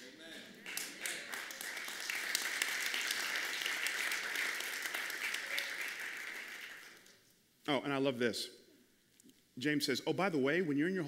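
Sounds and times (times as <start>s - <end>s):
congregation applauding: 0.0s - 7.2s.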